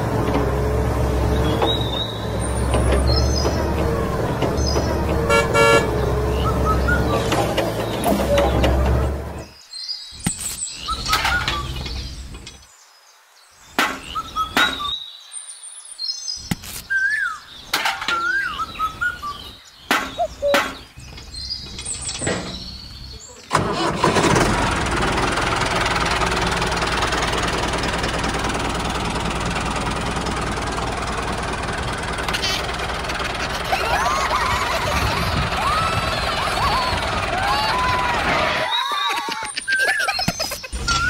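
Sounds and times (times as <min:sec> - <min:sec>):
small engine running: 0:00.0 - 0:09.4, 0:23.5 - 0:38.7.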